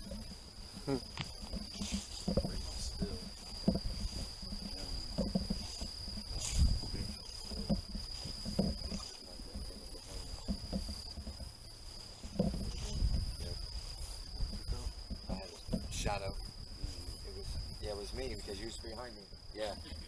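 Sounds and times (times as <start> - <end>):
crickets trilling: 0.0 - 20.0
footsteps through grass and brush: 0.4 - 15.7.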